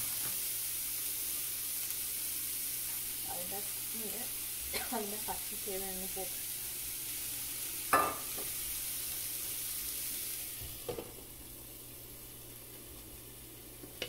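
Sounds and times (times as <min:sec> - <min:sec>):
food sizzling in a pan: 0:00.0 - 0:14.0
glass lid clinking on pan: 0:07.9 - 0:08.4.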